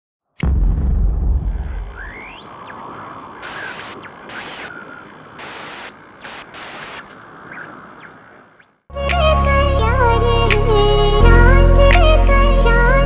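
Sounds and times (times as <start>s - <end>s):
faint whistling glides: 2.0s - 8.8s
steady airy hiss: 2.8s - 8.4s.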